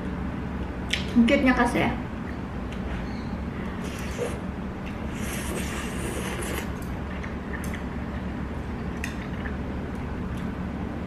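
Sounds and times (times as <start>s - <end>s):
steady low hum: 0.0s - 11.0s
person slurping noodles: 3.8s - 4.4s, 5.1s - 6.8s.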